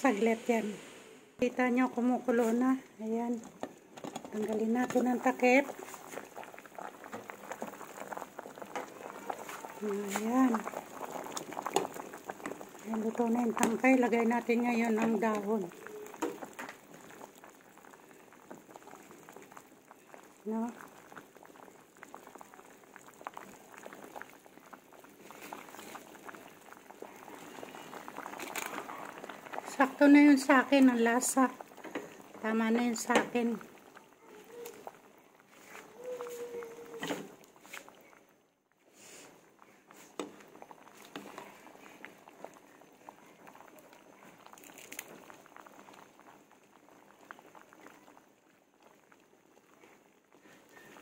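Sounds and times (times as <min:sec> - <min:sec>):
broth boiling and bubbling: 0:00.0 - 0:51.0
leafy greens rustling: 0:35.5 - 0:37.9.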